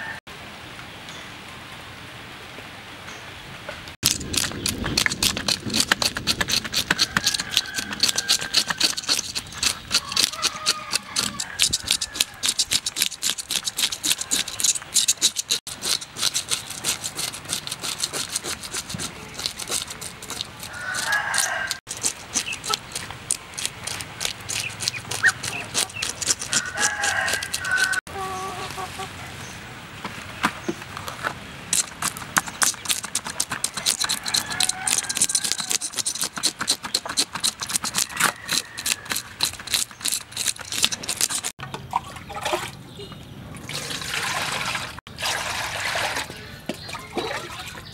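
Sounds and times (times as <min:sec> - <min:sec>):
knife scraping fish scales: 0:04.0 - 0:28.1, 0:31.7 - 0:41.6
chickens clucking: 0:24.2 - 0:29.4.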